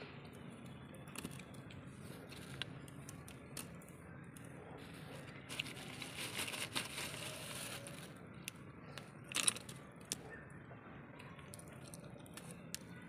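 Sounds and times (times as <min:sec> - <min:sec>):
plastic bag crinkling: 0:04.9 - 0:08.2
wood pieces clicking: 0:09.3 - 0:10.2.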